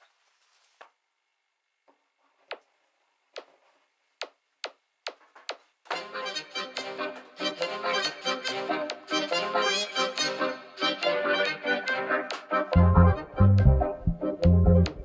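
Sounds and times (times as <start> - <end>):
accordion-like music: 5.9 - 15.0.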